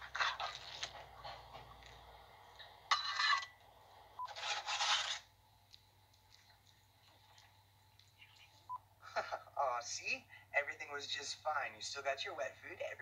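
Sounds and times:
cats eating ticks: 0.5 - 2.7, 5.3 - 8.7
paper plate scraping rustles: 4.3 - 5.3.

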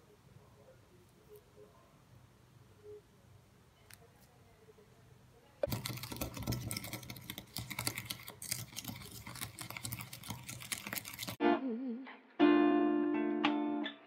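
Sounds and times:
spoon stirring in ceramic bowl: 5.6 - 11.4.

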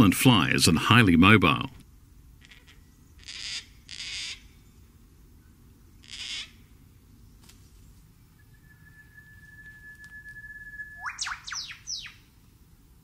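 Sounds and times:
cockatoo harsh rasping calls: 2.4 - 4.5, 6.0 - 6.7.

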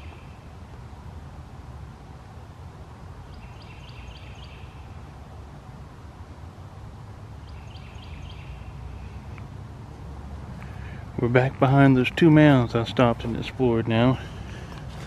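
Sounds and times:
steady low rumble: 8.5 - 15.0.

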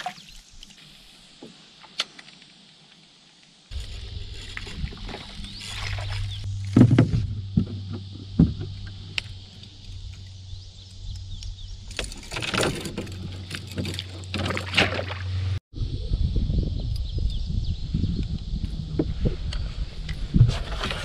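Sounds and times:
steady low hum: 3.7 - 14.0
knocks against a canoe hull: 6.7 - 8.8.

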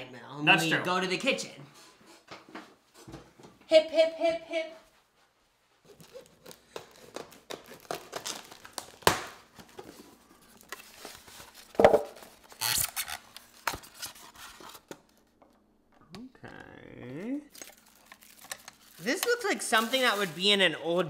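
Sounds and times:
plastic and foam crinkling: 5.8 - 15.2, 17.5 - 21.0.

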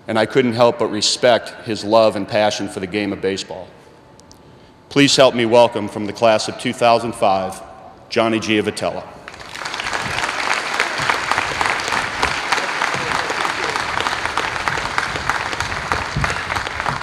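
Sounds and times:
audience applauding: 9.3 - 17.0.

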